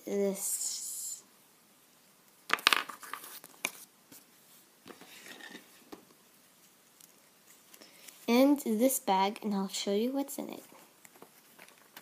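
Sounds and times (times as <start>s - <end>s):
plastic toy pieces set down: 2.5s - 3.2s.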